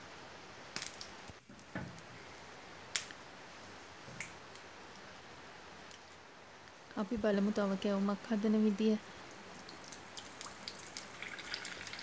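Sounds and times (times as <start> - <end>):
oil sizzling in a pan: 8.6 - 12.0
oil popping and crackling: 9.1 - 12.0.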